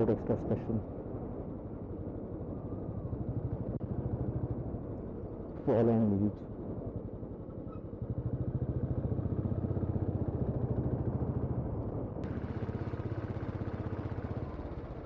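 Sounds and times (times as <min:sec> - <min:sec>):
motorcycle engine running: 0:12.2 - 0:15.0.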